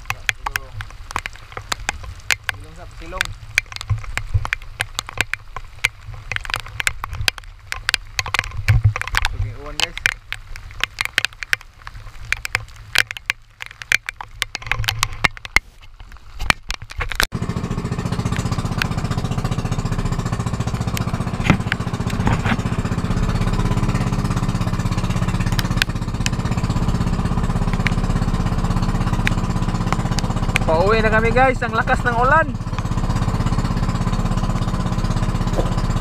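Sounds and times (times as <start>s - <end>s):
sharp clicks and knocks: 0.0s - 17.3s, 18.2s - 36.0s
small boat engine chugging: 17.3s - 36.0s.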